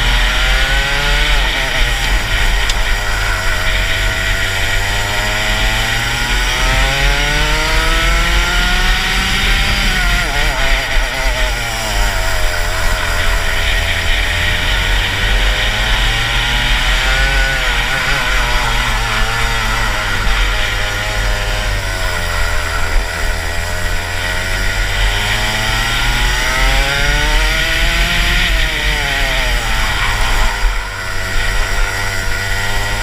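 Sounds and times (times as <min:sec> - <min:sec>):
kart engine revving: 0:00.0 - 0:33.0.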